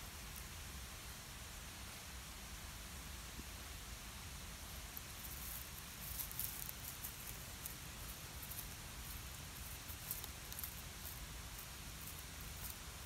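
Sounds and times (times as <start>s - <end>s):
cat chewing and crunching fish: 5.0s - 13.0s.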